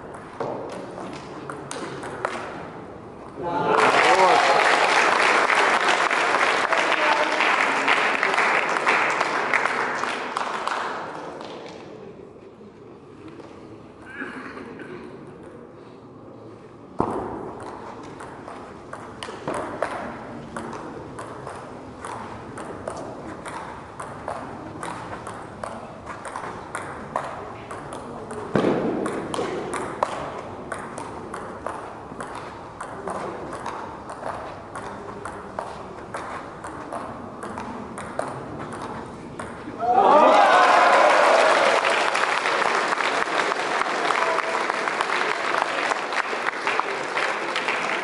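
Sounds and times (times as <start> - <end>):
table tennis ball clicking: 17.6 - 39.6.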